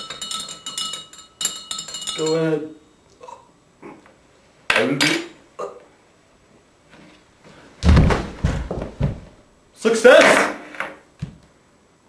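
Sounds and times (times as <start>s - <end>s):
heavy thuds: 7.8s - 9.4s.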